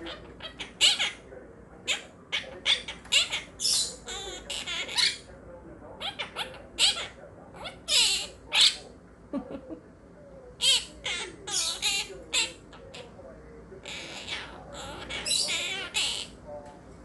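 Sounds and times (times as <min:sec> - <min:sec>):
parrot warbling trill: 0:00.0 - 0:01.2, 0:01.9 - 0:05.2, 0:06.0 - 0:08.8, 0:10.6 - 0:13.1, 0:13.8 - 0:16.4
parrots chirping and squawking: 0:00.0 - 0:05.3, 0:06.0 - 0:08.8, 0:10.6 - 0:13.2, 0:13.8 - 0:16.4.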